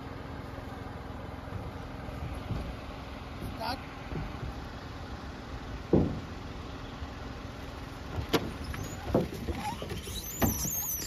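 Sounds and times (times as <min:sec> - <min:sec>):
car engine rumbling: 0:00.0 - 0:11.0
dull thuds: 0:02.2 - 0:04.7, 0:05.7 - 0:06.5, 0:08.0 - 0:11.0
high squeaky chirping: 0:08.5 - 0:11.0.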